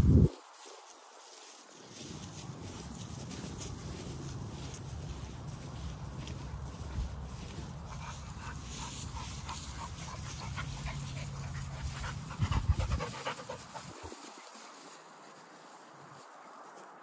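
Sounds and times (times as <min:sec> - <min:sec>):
dog panting: 0:07.6 - 0:14.9.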